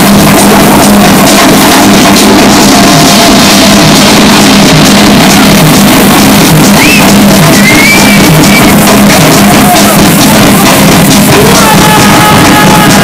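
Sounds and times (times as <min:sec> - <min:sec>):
techno music through sound system: 0:00.0 - 0:13.0.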